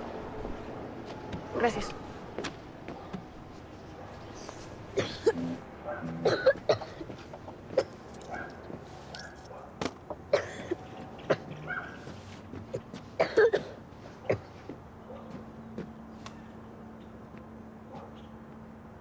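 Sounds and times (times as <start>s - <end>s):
child coughing: 5.0s - 5.6s, 6.2s - 7.0s, 7.7s - 8.0s, 10.3s - 11.5s, 12.7s - 14.6s.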